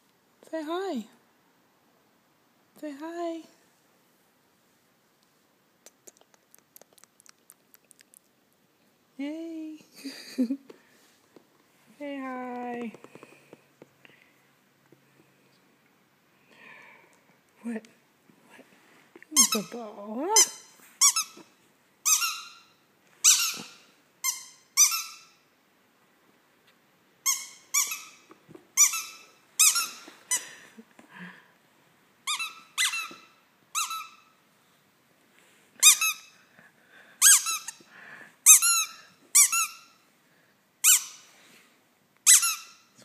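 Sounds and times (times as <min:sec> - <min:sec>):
squeaky dog toy squeaking: 0:19.4 - 0:25.4, 0:27.2 - 0:30.1, 0:32.2 - 0:34.3, 0:35.8 - 0:36.4, 0:37.2 - 0:37.8, 0:38.4 - 0:40.0, 0:40.8 - 0:41.3, 0:42.2 - 0:43.0.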